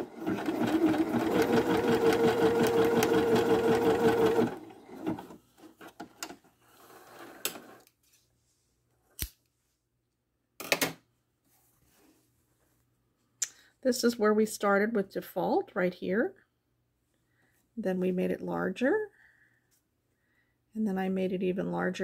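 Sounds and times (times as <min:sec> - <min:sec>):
sewing machine running: 0:00.0 - 0:05.4.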